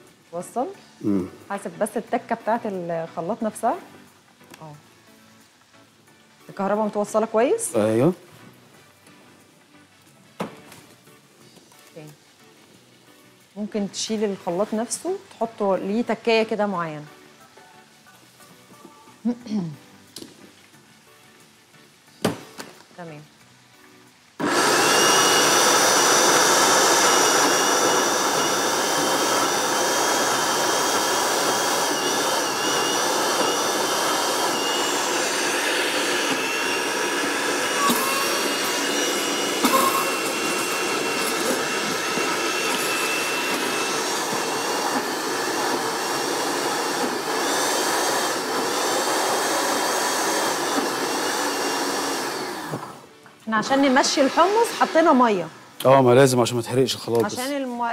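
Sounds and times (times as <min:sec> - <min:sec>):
blender motor whine: 0:24.4 - 0:55.5.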